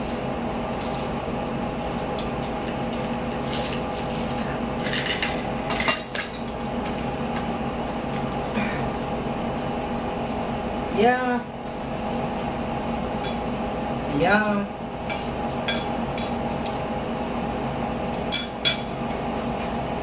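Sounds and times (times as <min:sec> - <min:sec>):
steady low hum: 0:00.0 - 0:20.0
forks clinking on plates: 0:03.4 - 0:07.1, 0:11.2 - 0:14.0, 0:15.1 - 0:16.8, 0:17.7 - 0:19.9.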